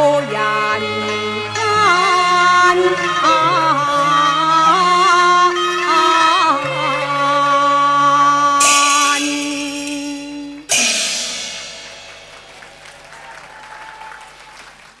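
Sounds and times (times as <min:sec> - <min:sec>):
opera instrumental accompaniment: 0:00.0 - 0:14.9
cymbal crash: 0:08.6 - 0:14.1.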